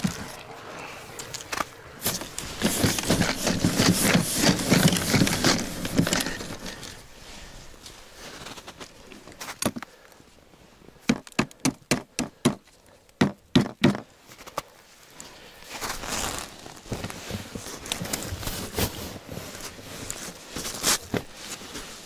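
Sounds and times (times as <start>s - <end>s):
snow crunching: 0.0s - 10.8s, 14.9s - 22.0s
clothing rustling: 1.2s - 9.6s, 14.3s - 22.0s
sharp crunching knocks: 11.0s - 14.1s.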